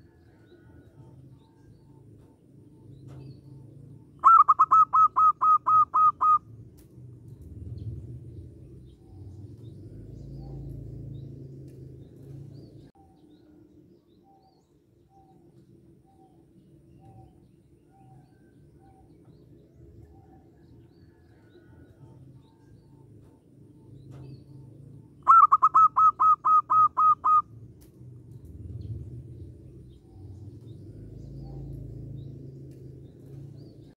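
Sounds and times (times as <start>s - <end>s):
bird sharp notes: 4.2s - 6.4s, 25.2s - 27.4s.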